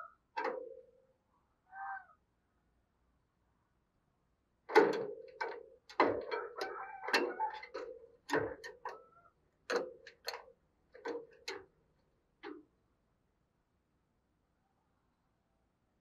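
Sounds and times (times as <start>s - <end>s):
bird knocking in wire cage: 4.7s - 9.0s.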